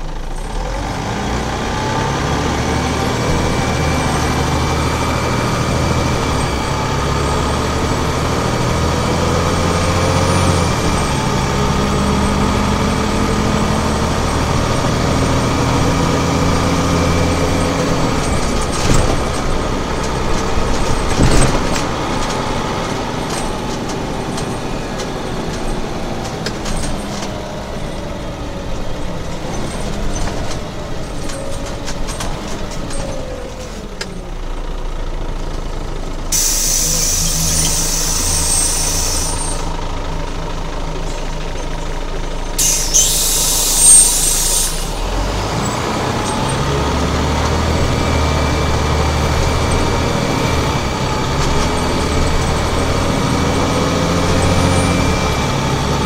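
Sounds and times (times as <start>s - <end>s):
bus diesel engine running: 0.0s - 56.0s.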